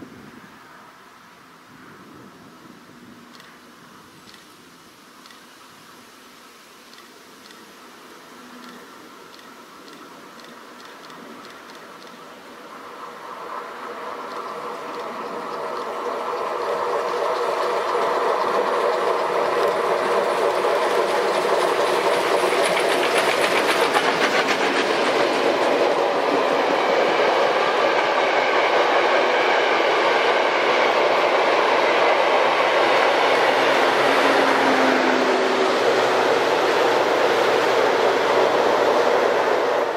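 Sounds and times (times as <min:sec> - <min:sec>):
steam train passing: 0:00.0 - 0:39.9
wheels clattering over rail joints: 0:14.1 - 0:26.6.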